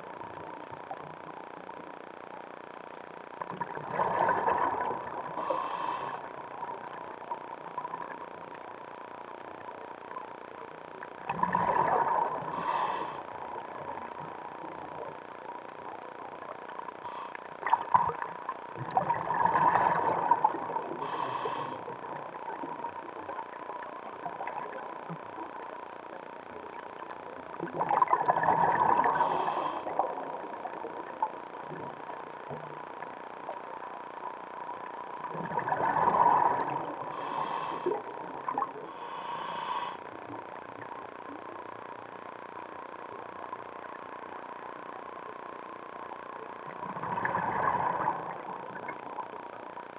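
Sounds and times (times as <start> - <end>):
faint steady whine: 0.0 - 49.9
regulator inhalation hiss: 5.4 - 6.3, 12.5 - 13.3, 17.0 - 17.4, 21.0 - 21.9, 29.1 - 30.0, 37.1 - 38.0, 38.8 - 40.1
bubbles from regulator exhale: 11.3 - 12.5, 18.8 - 20.9, 27.7 - 29.3, 35.3 - 37.1, 46.8 - 49.0.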